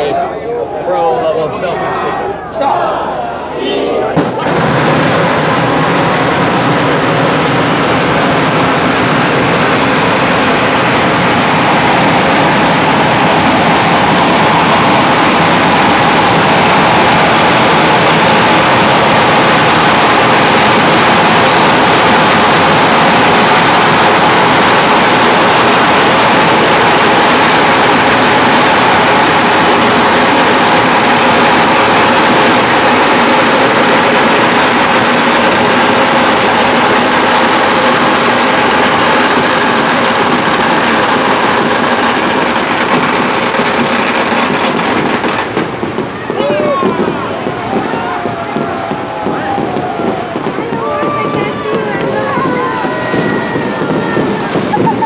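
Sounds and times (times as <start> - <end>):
firecrackers crackling: 4.2 - 55.0.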